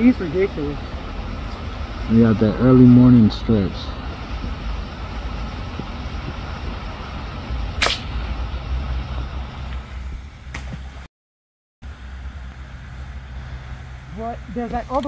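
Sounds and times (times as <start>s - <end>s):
low outdoor rumble: 0.0s - 11.1s, 11.8s - 15.0s
sharp crack: 7.8s - 8.4s, 9.6s - 11.0s.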